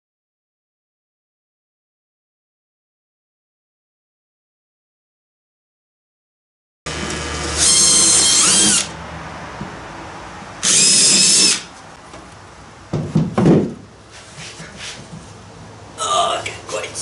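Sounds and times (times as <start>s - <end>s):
cordless drill whining: 6.9s - 9.0s, 10.6s - 11.7s
knocks: 12.9s - 13.8s.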